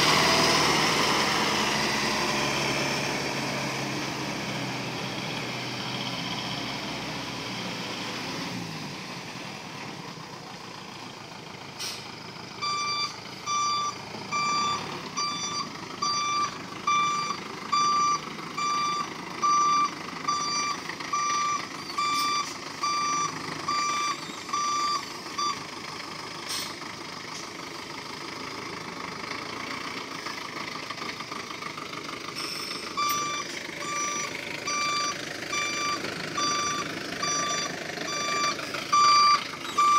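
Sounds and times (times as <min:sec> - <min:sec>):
truck engine running: 0:00.0 - 0:39.9
high electronic reversing beeps: 0:12.6 - 0:25.6, 0:32.4 - 0:39.9.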